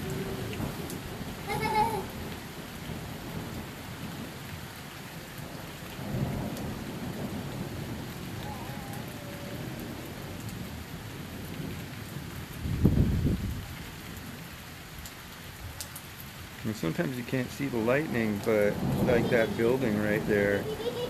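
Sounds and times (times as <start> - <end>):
steady rain falling: 0.0 - 21.0
thunder rumbling: 5.4 - 13.7, 16.7 - 21.0.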